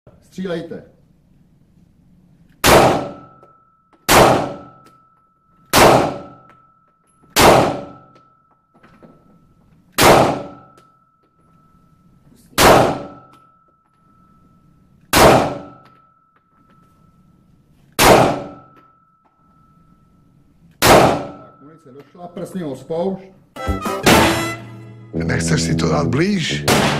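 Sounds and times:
handgun shots echoing: 2.6 - 3.3, 4.1 - 4.8, 5.7 - 6.5, 7.3 - 8.1, 10.0 - 10.7, 12.6 - 13.3, 15.1 - 15.8, 18.0 - 18.8, 20.8 - 21.4, 26.7 - 26.9
faint high ringing tone: 3.1 - 9.9, 10.5 - 17.9, 18.5 - 23.2.

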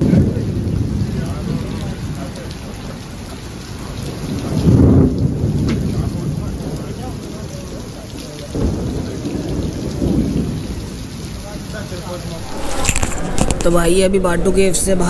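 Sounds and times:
heavy rain pouring: 0.0 - 15.0
deep low rumbles: 12.3 - 15.0.

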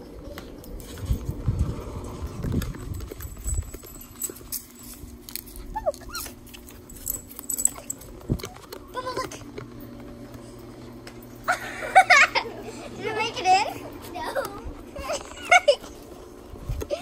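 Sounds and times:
dog whining: 5.5 - 9.5.

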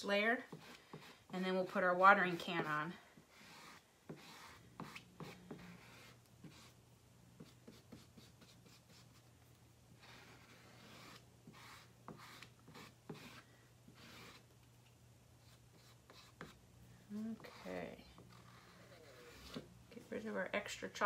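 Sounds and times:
squeegee scraping on chalkboard: 0.3 - 6.8, 10.0 - 14.4, 15.4 - 16.6, 17.2 - 19.7.

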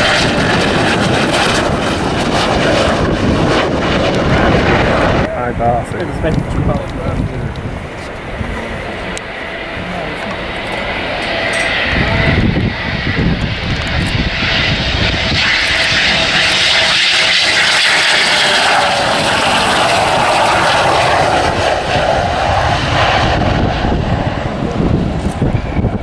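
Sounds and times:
jet engines roaring: 0.0 - 26.0
whining tone: 7.2 - 26.0.

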